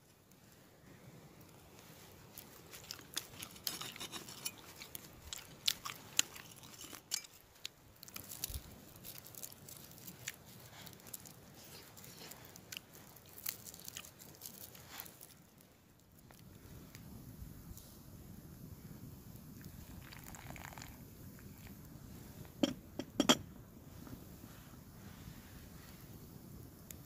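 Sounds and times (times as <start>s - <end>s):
garlic skins crackling: 1.4s - 16.4s.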